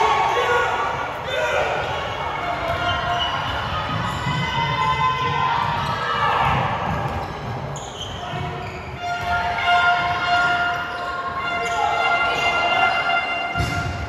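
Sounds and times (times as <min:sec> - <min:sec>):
spectators shouting and cheering: 0:00.0 - 0:14.0
ball bouncing on court floor: 0:02.5 - 0:10.9, 0:13.5 - 0:14.0.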